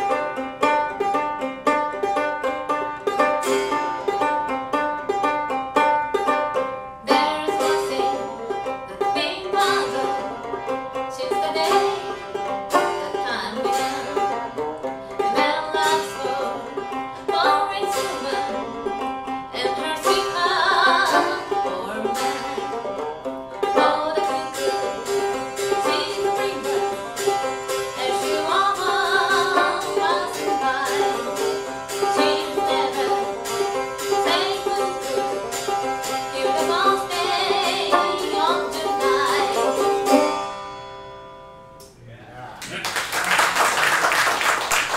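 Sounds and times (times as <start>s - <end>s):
banjo picking: 0.0s - 42.0s
woman singing: 7.0s - 12.3s, 13.0s - 14.2s, 15.2s - 22.5s, 23.6s - 40.3s.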